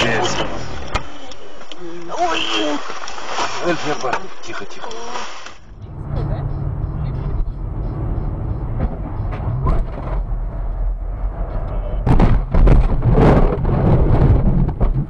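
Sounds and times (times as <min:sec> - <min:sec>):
car cabin road rumble: 0:00.0 - 0:15.0
knocks and thumps with rattling: 0:07.9 - 0:10.3, 0:12.0 - 0:15.0.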